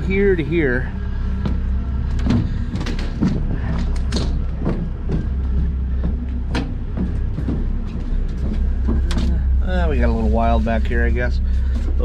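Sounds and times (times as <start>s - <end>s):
knocks and thuds: 1.4s - 9.6s.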